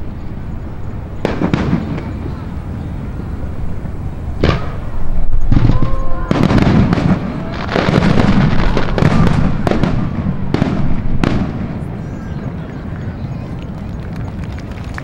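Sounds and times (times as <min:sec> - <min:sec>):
firework crackling: 0:00.0 - 0:15.0
firework booms: 0:01.2 - 0:02.6, 0:04.3 - 0:12.2.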